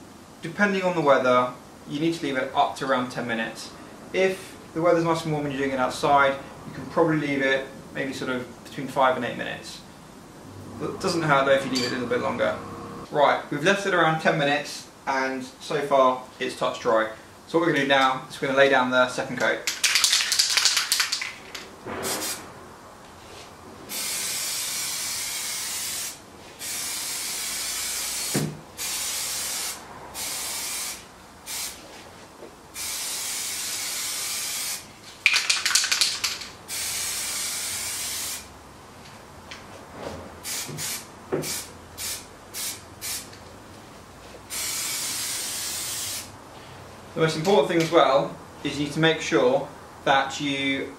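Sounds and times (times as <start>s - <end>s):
spray can rattling when shaken: 19.6s - 22.4s, 32.8s - 38.4s
aerosol can spraying: 22.0s - 22.4s, 23.9s - 31.9s, 32.8s - 38.5s, 40.4s - 43.3s, 44.5s - 46.3s.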